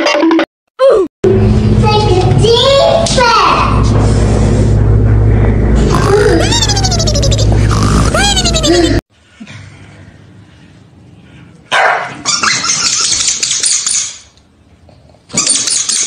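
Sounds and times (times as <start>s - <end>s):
dogs barking: 11.7s - 12.8s.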